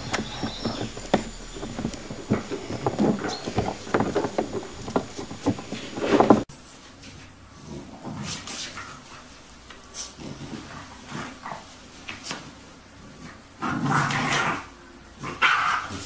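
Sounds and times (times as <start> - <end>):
puppies grunting and squeaking: 0.0 - 6.4.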